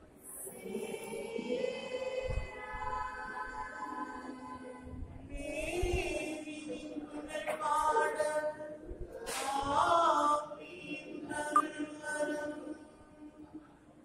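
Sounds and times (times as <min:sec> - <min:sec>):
group singing long held notes: 0:00.0 - 0:13.6.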